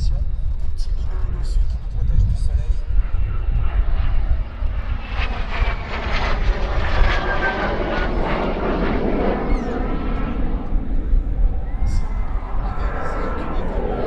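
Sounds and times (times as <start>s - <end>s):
high jet whine: 0.0s - 14.0s
jet engines rumbling: 0.0s - 14.0s.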